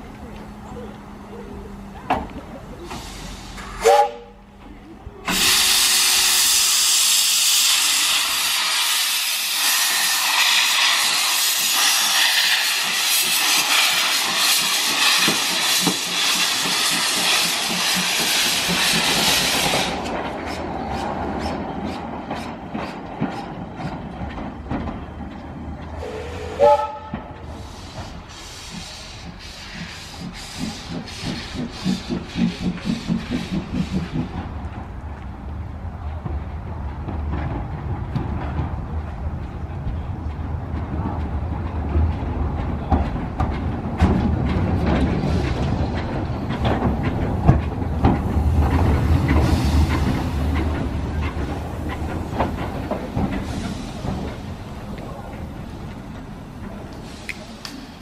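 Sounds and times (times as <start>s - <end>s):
steam locomotive exhaust chuffing: 0.0s - 4.6s, 5.2s - 24.8s, 25.8s - 34.8s, 40.7s - 58.0s
hiss of steam: 2.8s - 4.0s, 5.2s - 20.1s, 27.4s - 34.3s, 48.2s - 55.9s, 56.8s - 58.0s
steam whistle toot: 3.8s - 4.4s, 26.0s - 27.2s
wheels clanking over rail joints: 11.2s - 58.0s.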